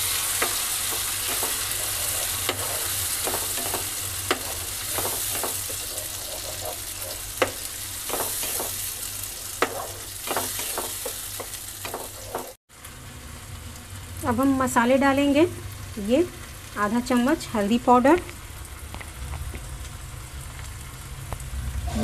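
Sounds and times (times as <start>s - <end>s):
gravy sizzling in frying pan: 0.0s - 22.0s
spatula tapping and scraping pan: 0.3s - 12.6s.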